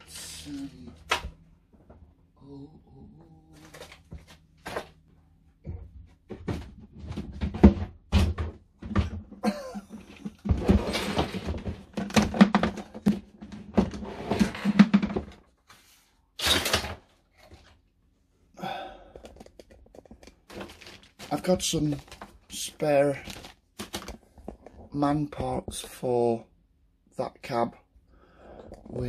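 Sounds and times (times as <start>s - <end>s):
knocks of things set down: 5.7s - 15.4s
rustling of packets: 19.3s - 24.9s.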